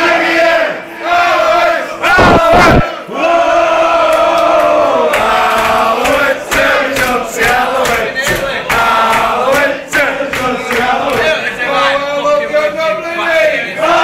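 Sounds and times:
men chanting in long held notes: 0:00.0 - 0:11.9.

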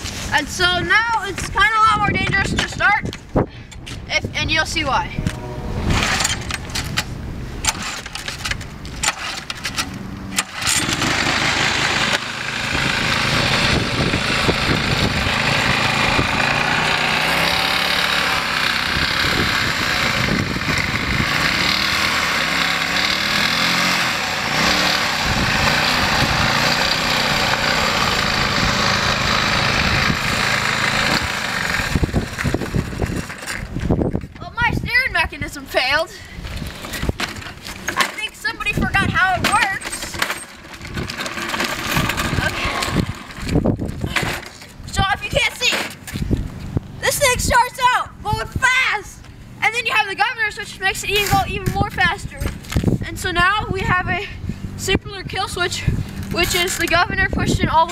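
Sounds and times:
starter rope pulls: 0:05.2 - 0:34.6, 0:36.4 - 0:47.2, 0:54.8 - 0:57.9
lawn mower engine running: 0:05.2 - 0:34.7, 0:36.2 - 0:47.0, 0:53.9 - 0:57.9.

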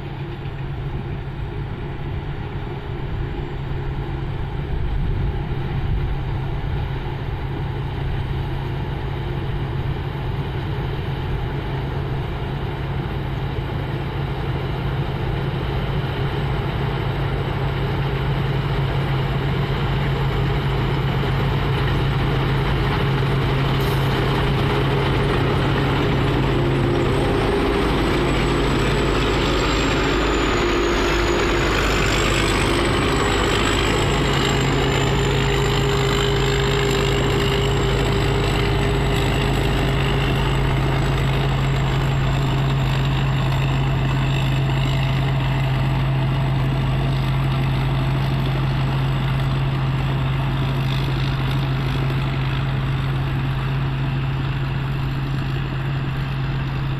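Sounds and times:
combine harvester engine hum: 0:00.0 - 0:56.9
thin high whine: 0:20.3 - 0:47.4.

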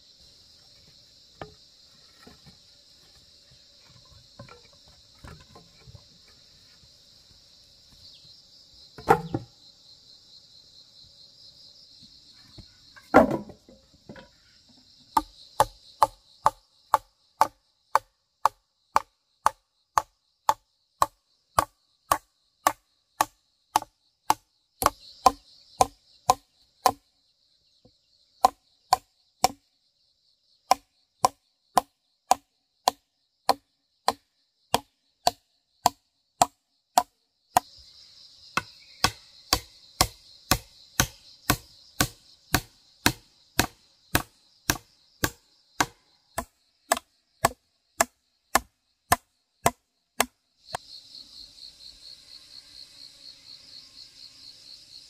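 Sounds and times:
insects buzzing: 0:00.0 - 0:55.0
wooden mallet striking nails: 0:13.2 - 0:14.2, 0:15.2 - 0:27.0, 0:28.4 - 0:29.6, 0:30.7 - 0:37.7, 0:38.6 - 0:50.4.

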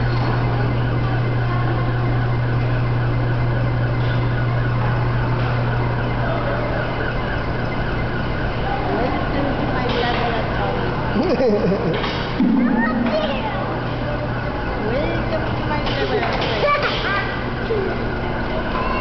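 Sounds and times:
steady low hum: 0:10.5 - 0:15.8.

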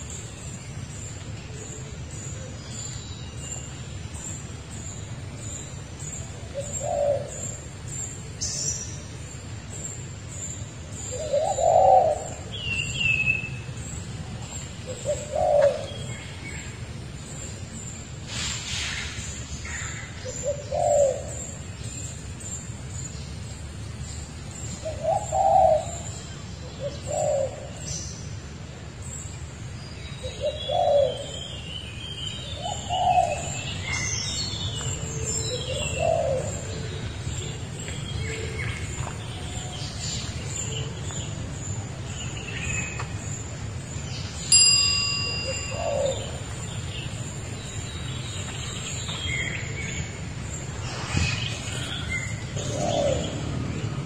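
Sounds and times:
low hooting bird calls: 0:11.0 - 0:13.7, 0:14.4 - 0:16.8, 0:45.4 - 0:54.0
sharp ringing ding: 0:44.5 - 0:46.4.

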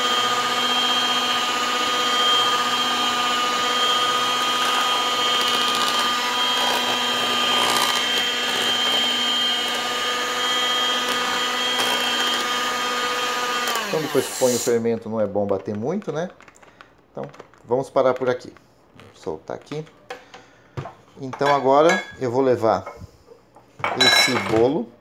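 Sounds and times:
electric hand mixer whining: 0:00.0 - 0:14.8.

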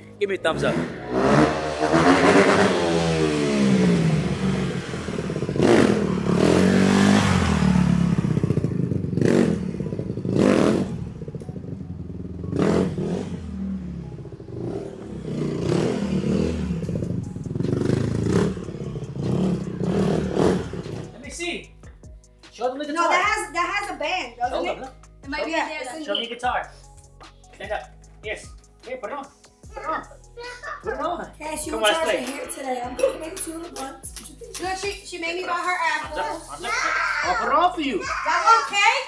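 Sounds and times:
dirt bike engine revving: 0:00.5 - 0:11.4, 0:12.3 - 0:21.2.

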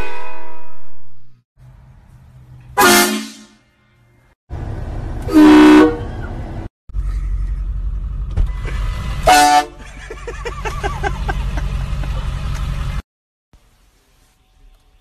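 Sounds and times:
vehicle low rumble: 0:01.6 - 0:02.8, 0:03.6 - 0:13.0
train horn blasts: 0:02.8 - 0:03.6, 0:05.3 - 0:06.1, 0:09.2 - 0:09.8.

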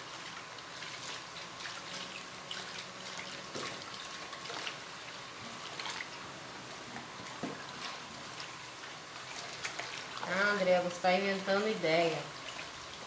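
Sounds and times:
spoon stirring sloshing liquid: 0:00.0 - 0:11.1, 0:12.4 - 0:13.0
small splashes and ticks: 0:00.1 - 0:06.2, 0:09.1 - 0:10.4, 0:12.4 - 0:13.0.

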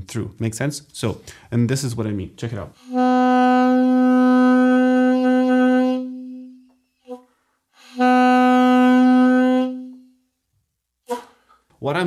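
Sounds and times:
saxophone note choking: 0:11.1 - 0:11.6.

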